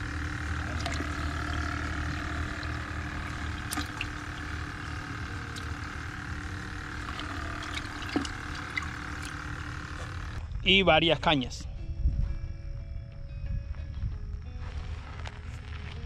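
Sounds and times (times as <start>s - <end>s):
water bubbling: 0.0s - 10.4s
air pump humming: 0.0s - 10.5s.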